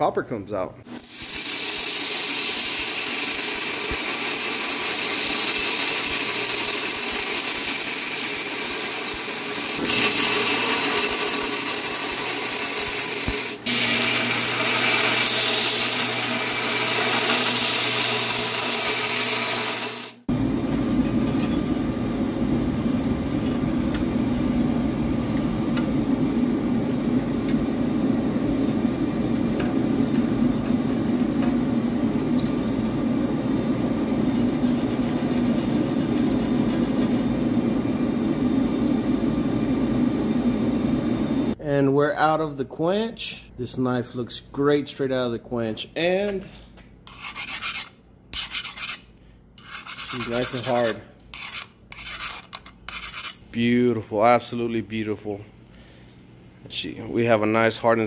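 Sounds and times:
belt grinder grinding knife blade: 0:01.0 - 0:20.2, 0:47.1 - 0:53.4
low rushing roar: 0:20.3 - 0:41.6.

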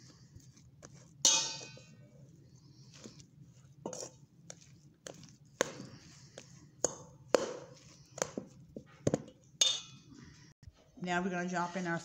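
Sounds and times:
metal spoon knocking on steel bowl: 0:01.3 - 0:01.9.

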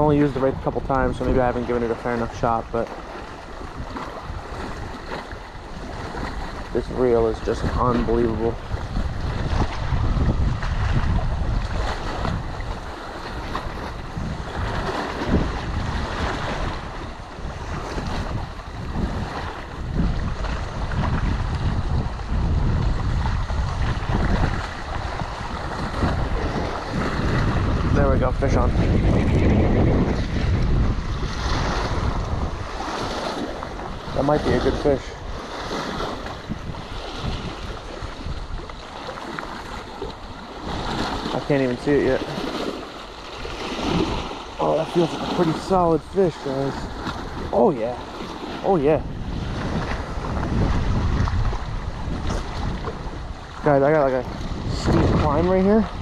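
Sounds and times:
choppy water lapping: 0:00.0 - 0:56.0
wind buffeting microphone: 0:00.0 - 0:56.0.

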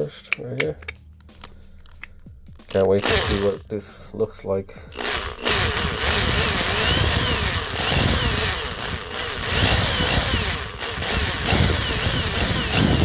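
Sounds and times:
electric drill boring into metal: 0:02.9 - 0:03.6, 0:04.9 - 0:13.0.

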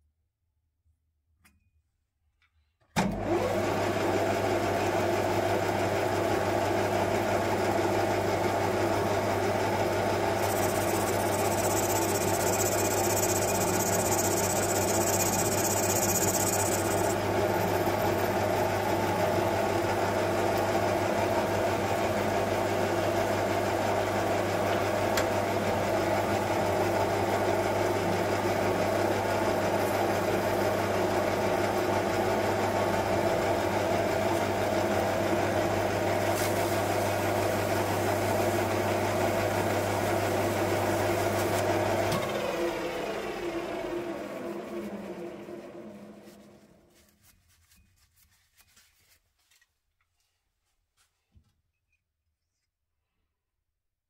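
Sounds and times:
metal lathe humming: 0:10.2 - 0:19.6.

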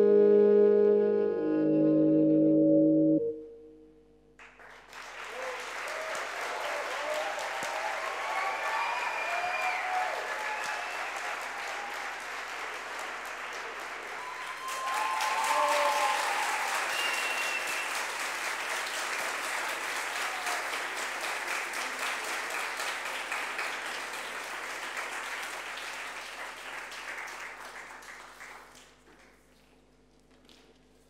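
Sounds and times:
audience applauding: 0:04.4 - 0:29.8
audience cheering: 0:05.0 - 0:27.4.

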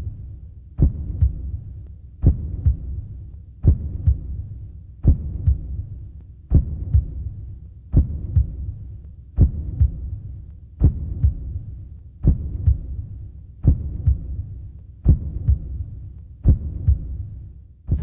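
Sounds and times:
slow heartbeat thumps: 0:00.0 - 0:18.0.

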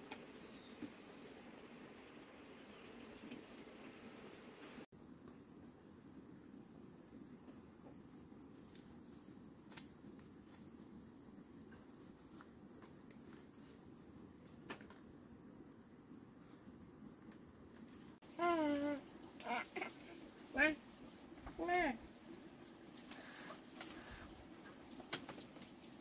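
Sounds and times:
faint outdoor background noise: 0:00.0 - 0:26.0
insect trilling: 0:18.2 - 0:26.0
short high voice: 0:18.4 - 0:19.9.

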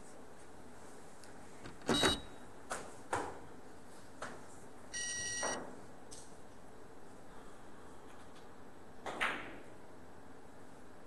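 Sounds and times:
electronic beep: 0:01.9 - 0:02.3.

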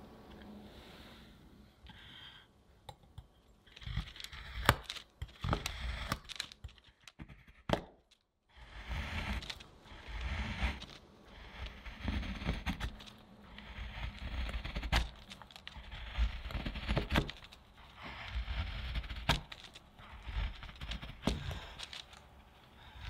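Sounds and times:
knife chopping chocolate: 0:02.9 - 0:08.1, 0:08.8 - 0:22.0.

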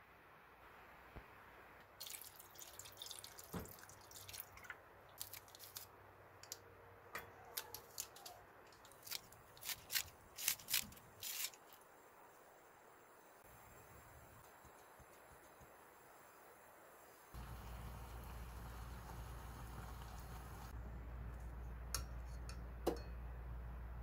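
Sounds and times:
ingredients plopping into water: 0:02.0 - 0:05.8.

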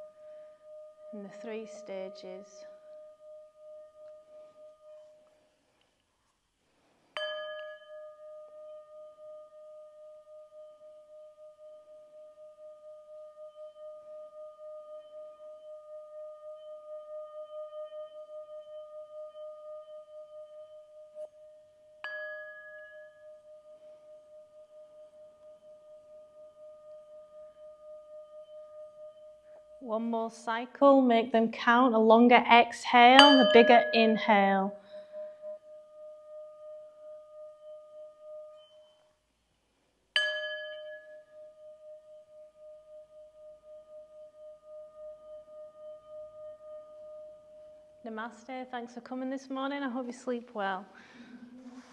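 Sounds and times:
singing bowl ringing: 0:00.0 - 0:05.3, 0:07.2 - 0:30.0, 0:33.2 - 0:39.1, 0:40.2 - 0:48.1
singing bowl strike: 0:07.2 - 0:29.8, 0:33.2 - 0:34.4, 0:40.2 - 0:47.7.

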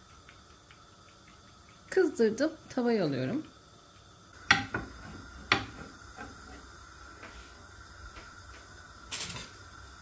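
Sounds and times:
faint steady hiss: 0:00.0 - 0:10.0
rolling pin knocking on pan: 0:04.4 - 0:06.7.

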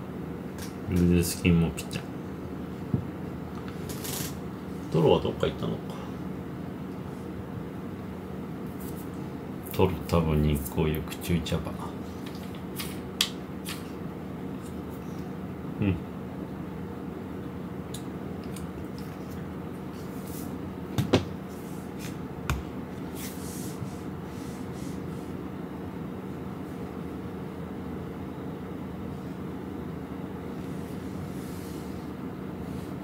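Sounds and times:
low room hum: 0:00.0 - 0:33.0.

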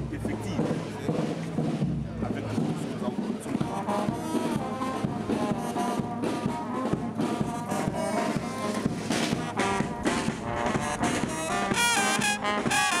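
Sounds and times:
music with steady beat: 0:00.0 - 0:13.0
horn-like melody: 0:03.6 - 0:13.0.

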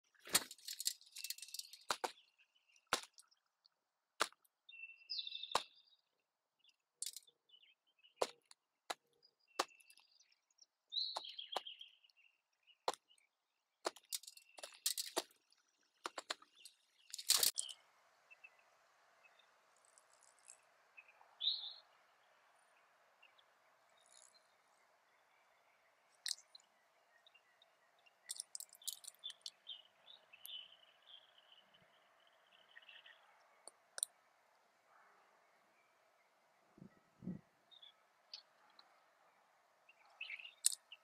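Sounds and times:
bird cracking seeds: 0:00.2 - 0:02.2, 0:07.0 - 0:07.2, 0:13.9 - 0:17.8, 0:19.7 - 0:20.7, 0:23.9 - 0:24.4, 0:28.3 - 0:29.6.

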